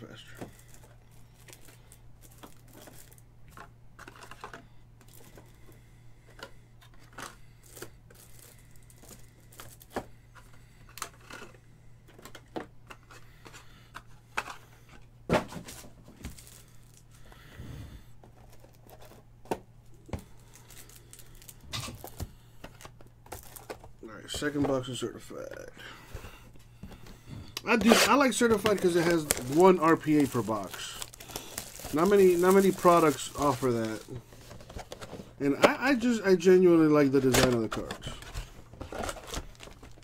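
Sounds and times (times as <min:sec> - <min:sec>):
cardboard and wrapper rustling: 0:00.0 - 0:17.3, 0:18.2 - 0:40.0
low steady hum: 0:00.0 - 0:40.0.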